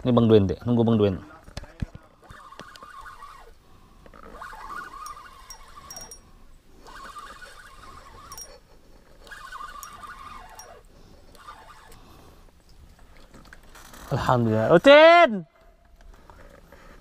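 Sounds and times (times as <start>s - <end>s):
animal calling: 2.2s - 3.6s.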